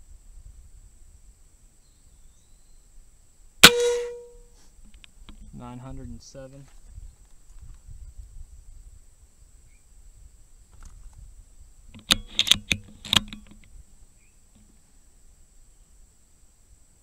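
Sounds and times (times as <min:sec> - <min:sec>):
air rifle mechanical clicks: 0:12.0 - 0:13.7.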